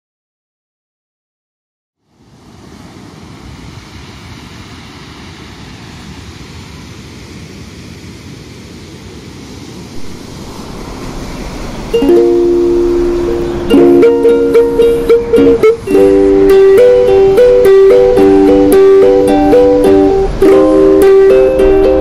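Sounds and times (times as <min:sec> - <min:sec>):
surf on pebble beach: 0:02.1 - 0:22.0
ukulele plucking notes: 0:11.4 - 0:22.0.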